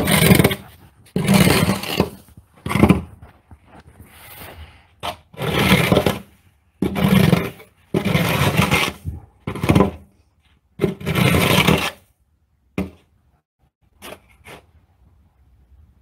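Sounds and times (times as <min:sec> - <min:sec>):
snow shovel scraping pavement: 0:00.0 - 0:10.1, 0:10.8 - 0:12.1.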